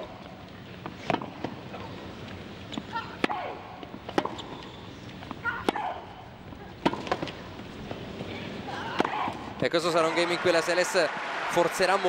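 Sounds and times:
racket striking tennis ball: 4.1 - 4.5, 5.5 - 6.1, 6.8 - 7.4, 8.9 - 9.4.

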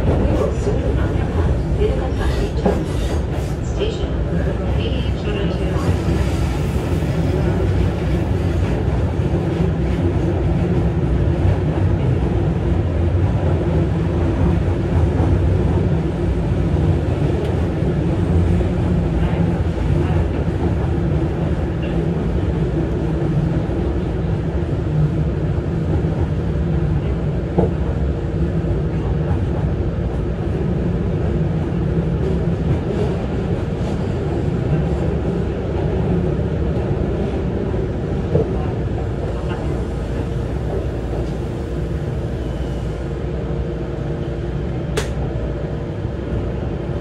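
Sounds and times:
train wheels rumbling on rail: 0.0 - 47.0
short sharp click: 44.9 - 45.2.

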